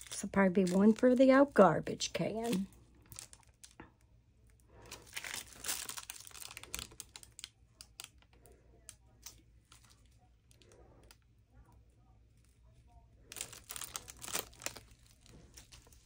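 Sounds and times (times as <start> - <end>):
paper towel crinkling: 12.3 - 16.0.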